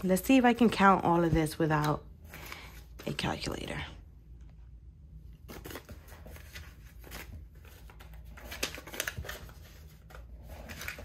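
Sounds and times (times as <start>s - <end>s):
paper bills rustling and flicking: 5.4s - 11.0s.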